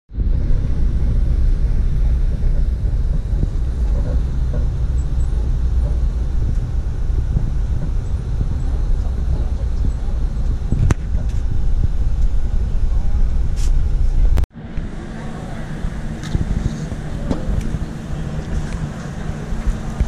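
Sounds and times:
road vehicle rumble: 0.1s - 20.0s.

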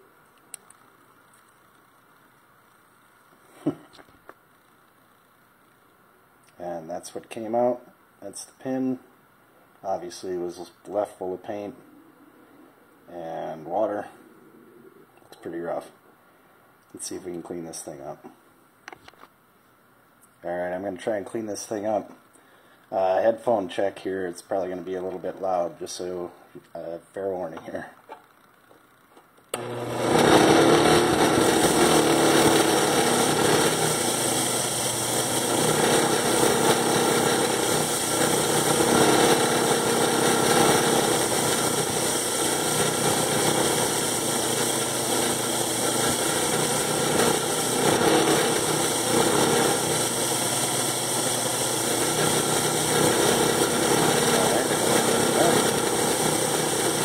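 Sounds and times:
wire wheel grinder running: 29.6s - 57.0s.

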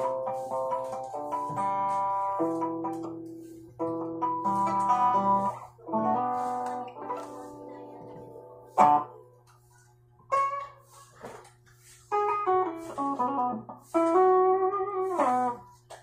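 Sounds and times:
clean electric guitar chords: 0.0s - 9.3s, 12.1s - 15.6s.

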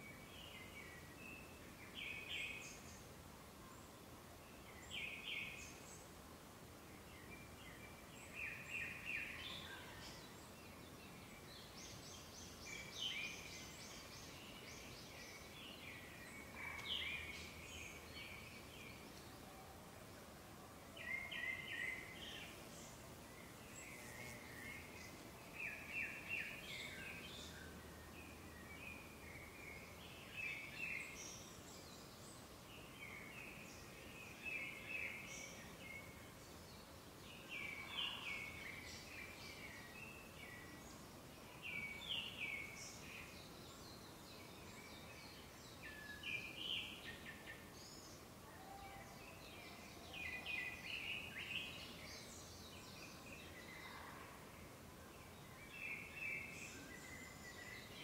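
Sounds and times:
faint forest background: 0.0s - 58.0s
bird chirping phrases: 21.0s - 58.0s.

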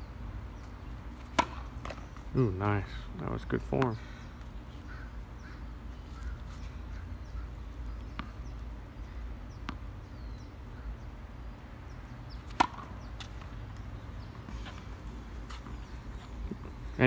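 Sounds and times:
racket striking ball: 1.2s - 2.1s, 12.4s - 13.5s
tennis ball bouncing on court: 1.2s - 2.2s, 8.0s - 8.5s, 9.5s - 9.9s, 12.3s - 15.9s.

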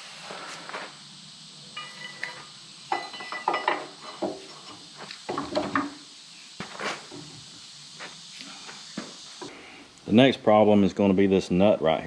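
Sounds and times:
steel tools clanking on metal: 1.8s - 4.8s.

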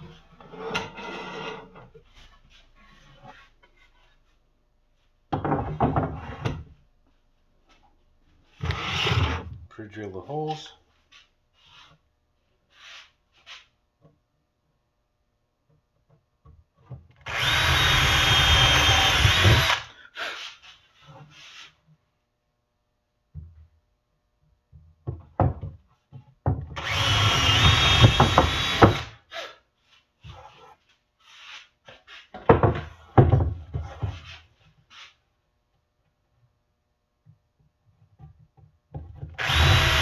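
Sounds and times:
cordless drill boring into wood: 8.6s - 9.4s, 17.2s - 19.9s, 26.8s - 29.1s, 39.4s - 40.0s
boards knocking: 32.4s - 34.2s.

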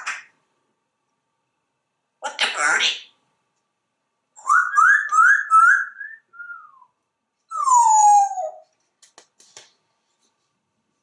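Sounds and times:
parrot whistling: 4.4s - 6.9s, 7.5s - 8.6s.

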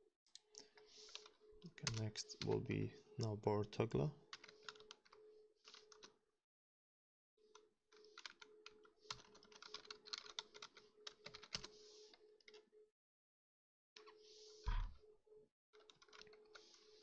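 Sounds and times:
computer keyboard typing: 1.1s - 2.6s, 4.3s - 6.1s, 7.5s - 11.7s, 15.8s - 17.0s.

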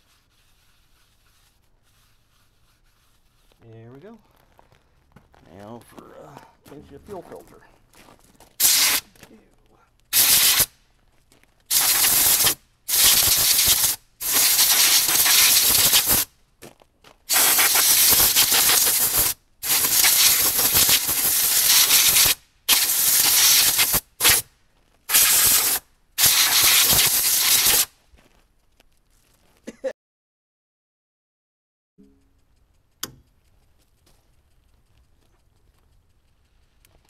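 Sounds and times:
compressed air blow gun hissing: 8.6s - 9.2s, 10.1s - 10.8s, 11.7s - 16.3s, 17.3s - 24.5s, 25.1s - 27.9s.

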